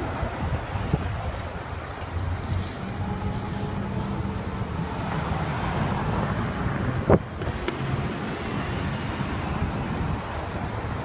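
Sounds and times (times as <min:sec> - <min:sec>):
traffic engines humming: 0:00.0 - 0:11.0.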